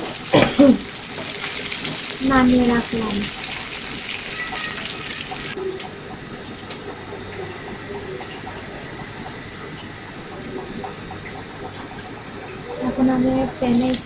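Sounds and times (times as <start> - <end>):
oil sizzling in a frying pan: 0.0 - 5.6, 13.6 - 14.0.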